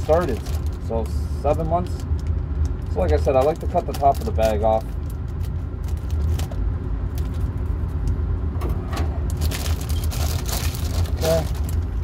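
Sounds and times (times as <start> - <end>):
plastic bag crinkling: 0.0 - 0.9, 2.9 - 6.6, 9.3 - 12.0.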